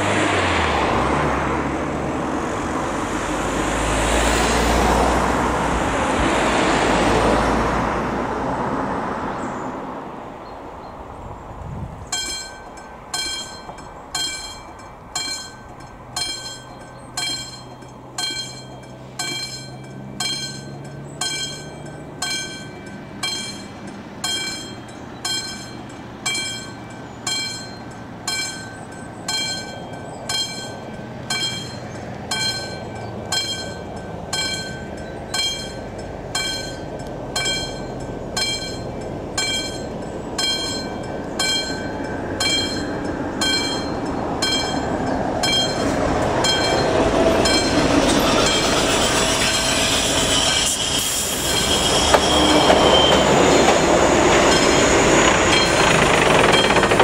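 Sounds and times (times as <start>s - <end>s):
level crossing bell ringing: 12.2s - 48.7s.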